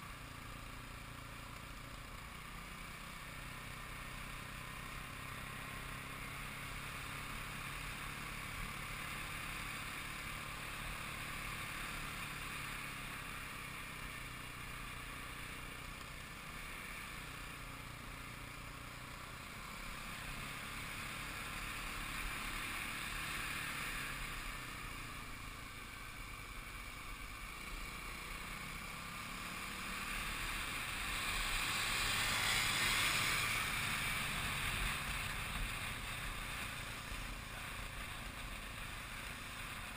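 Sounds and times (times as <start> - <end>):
dirt bike engine cruising: 0.0 - 39.9.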